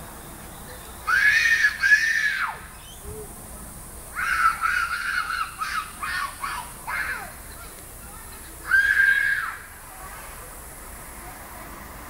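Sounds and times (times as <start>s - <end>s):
little girl screaming: 1.1s - 2.7s, 4.2s - 7.3s, 8.6s - 9.7s.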